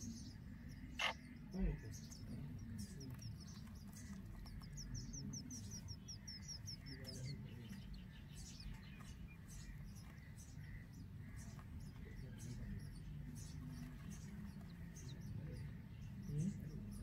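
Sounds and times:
nestlings cheeping: 0.7 - 8.7.

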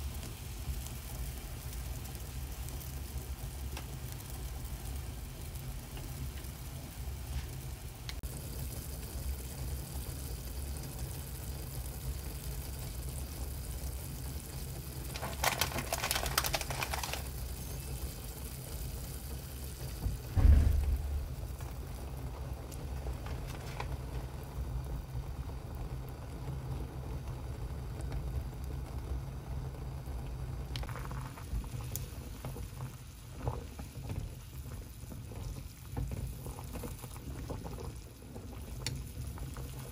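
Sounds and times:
broth bubbling in a pot: 0.0 - 39.9
loud thump: 20.1 - 22.0.

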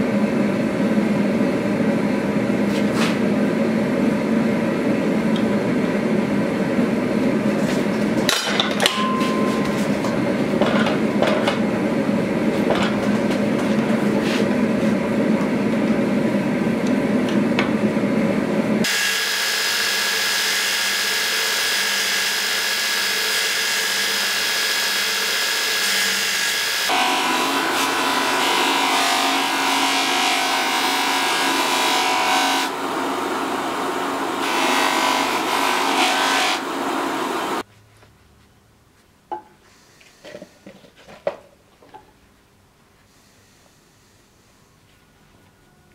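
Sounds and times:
machine hum: 0.0 - 37.7
belt grinder hissing: 18.8 - 37.6
polishing wheel whining: 18.8 - 37.7.

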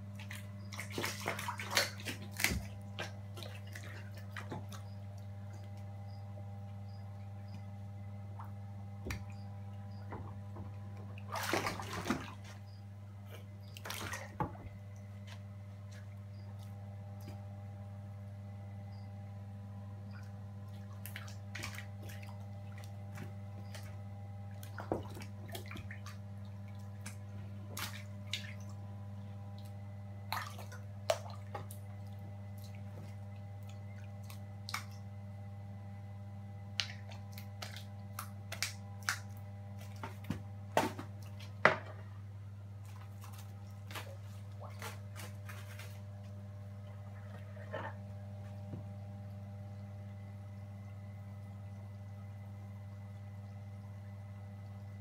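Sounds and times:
water drips and splashes: 0.0 - 5.9, 10.0 - 12.7, 13.6 - 17.4, 20.1 - 35.2, 36.7 - 41.6, 42.8 - 46.1
steady low hum: 0.0 - 55.0.

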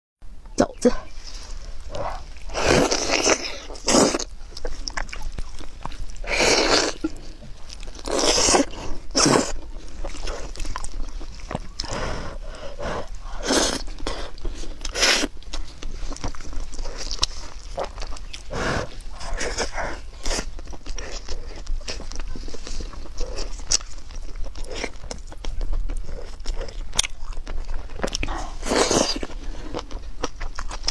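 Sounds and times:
wet biting and chewing: 1.8 - 30.9.

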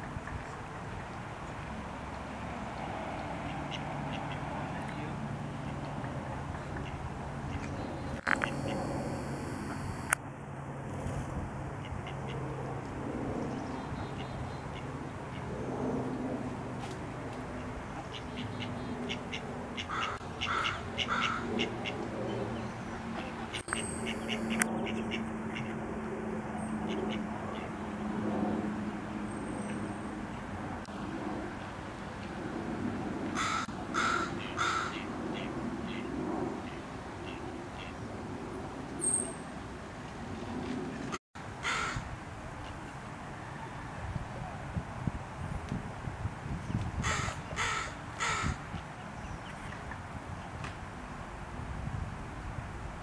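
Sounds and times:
duck quacking: 19.1 - 22.0.

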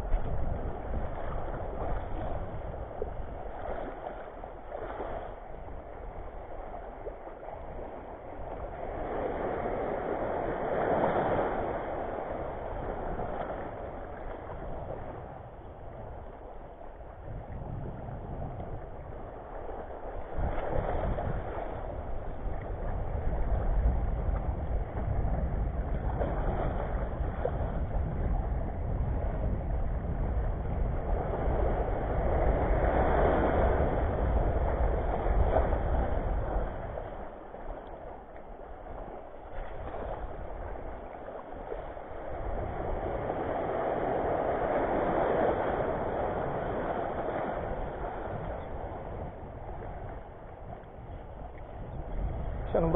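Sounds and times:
sea waves washing over rocks: 0.0 - 52.9
wind rumble on microphone: 0.0 - 52.9.

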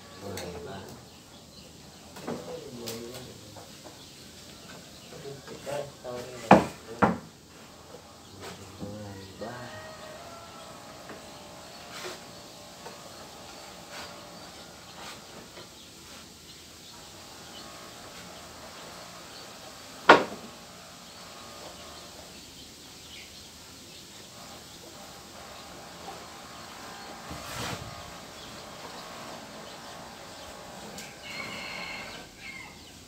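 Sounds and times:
sharp loud knock: 20.1 - 20.4
brief scrape: 27.4 - 28.0.

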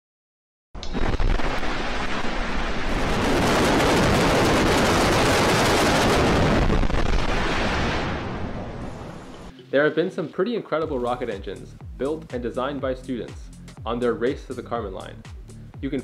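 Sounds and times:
rocket engine exhaust roar: 1.5 - 8.8.

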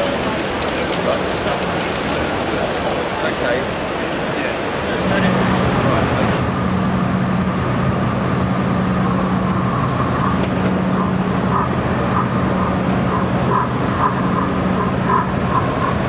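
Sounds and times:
model train humming: 0.0 - 16.0
murmur of crowd: 0.0 - 16.0.

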